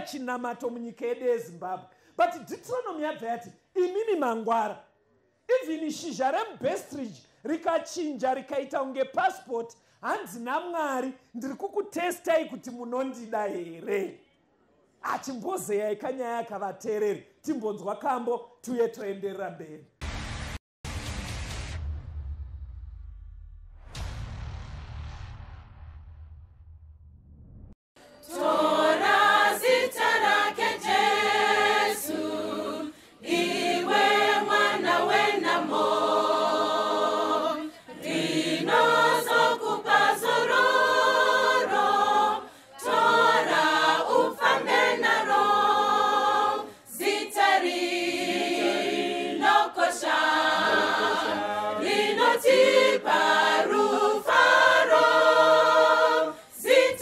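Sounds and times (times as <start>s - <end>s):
choir singing a hymn: 28.0s - 57.0s.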